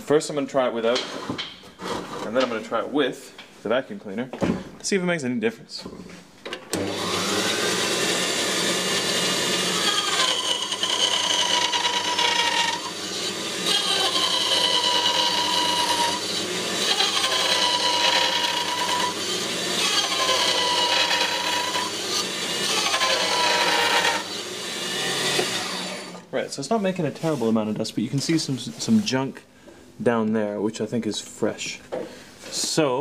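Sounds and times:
band saw running: 6.7 - 26.2
band saw whining through wood: 6.7 - 26.2.

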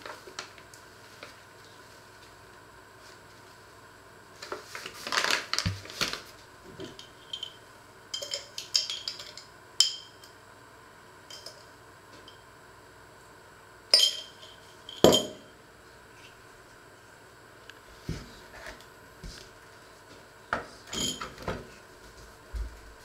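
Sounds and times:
spoon clinking on glass jar: 7.0 - 7.6, 8.2 - 10.3, 13.9 - 15.4.

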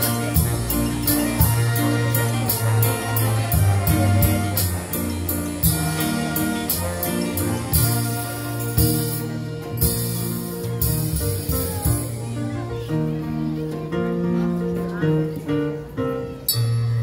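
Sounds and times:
marching band playing: 0.0 - 12.5.

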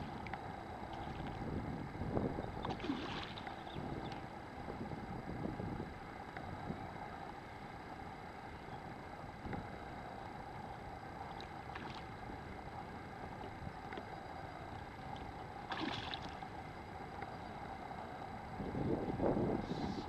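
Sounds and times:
open water ambience: 0.0 - 20.0
splash on water: 15.7 - 16.3.

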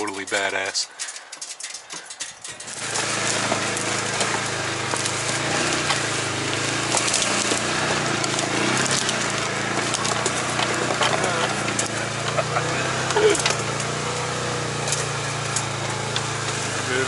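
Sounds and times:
utility vehicle engine running: 0.0 - 17.0
clicks and knocks: 0.2 - 5.1.

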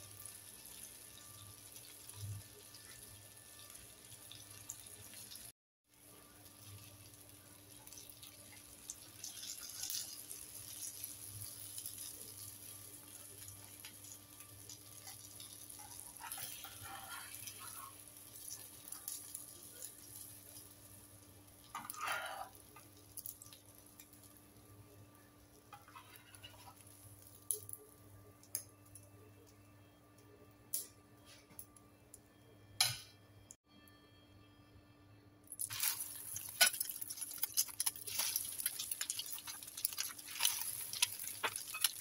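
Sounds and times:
oil sizzling in a pan: 0.0 - 29.0, 35.5 - 42.0
metal spatula scraping a pan: 15.0 - 19.1, 21.7 - 22.6, 25.7 - 27.0.

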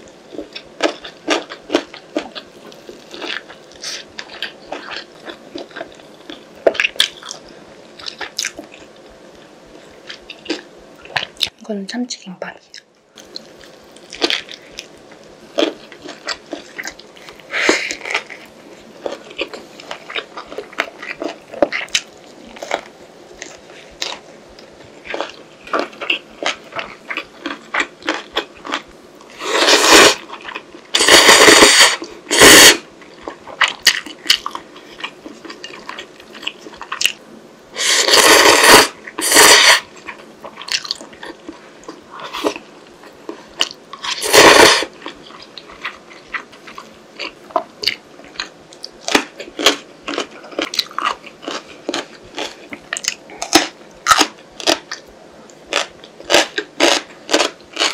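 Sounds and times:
close chewing and mouth clicks: 0.0 - 11.5, 12.7 - 37.2, 37.8 - 57.9
noodle slurps: 29.3 - 30.2, 30.9 - 32.8, 37.8 - 39.9, 44.0 - 44.9.

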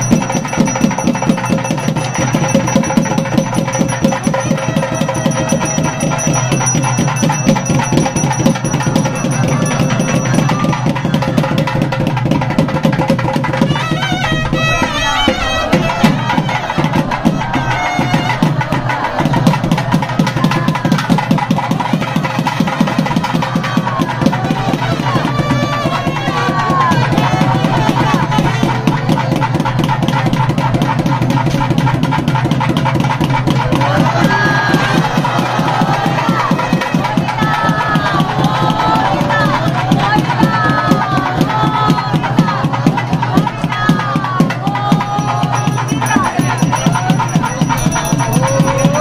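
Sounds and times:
fast drumming: 0.0 - 49.0
double-reed pipe melody: 3.8 - 10.6, 13.6 - 19.2.

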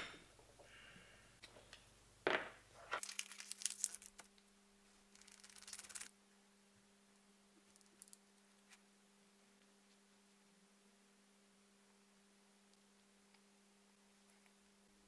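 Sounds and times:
low electrical hum: 0.0 - 15.0
scratchy rubbing and crinkling: 2.8 - 4.3, 5.0 - 6.1.

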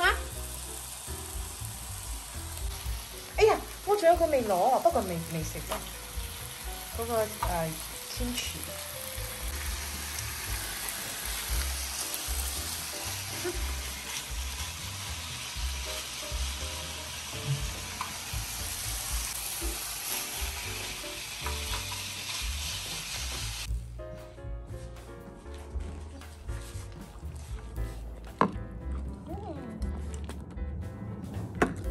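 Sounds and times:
meat sizzling on grill pan: 0.0 - 23.7.

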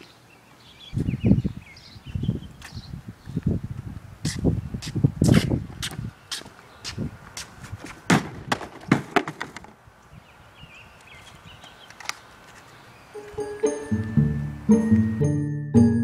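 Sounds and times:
footsteps on concrete: 2.5 - 9.2.

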